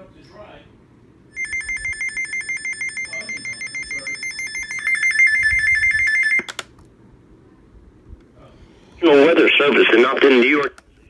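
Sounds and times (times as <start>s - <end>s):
warbling electronic alarm: 1.3s - 6.5s.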